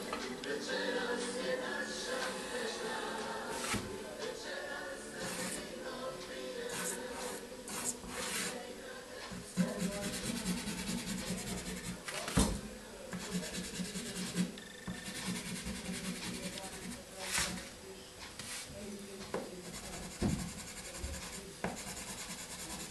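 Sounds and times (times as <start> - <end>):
background music: 0.0 - 8.5
pastel scratching on paper: 6.7 - 8.6, 9.6 - 12.0, 13.2 - 17.7, 19.6 - 22.9.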